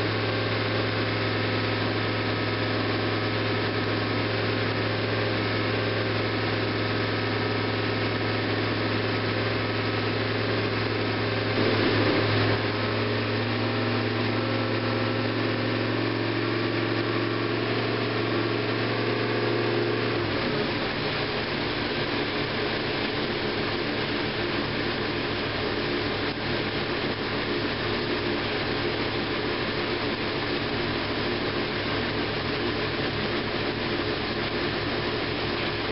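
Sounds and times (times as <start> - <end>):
vee eight engine running: 0.0 - 17.2.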